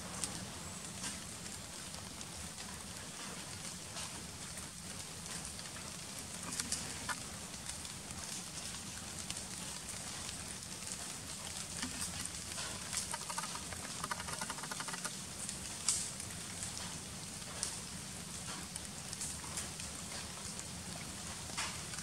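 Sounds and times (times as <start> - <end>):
rustling of dry leaf litter: 0.0 - 22.0
rapid pulsing: 11.7 - 15.2
small scattered clicks: 11.8 - 16.1.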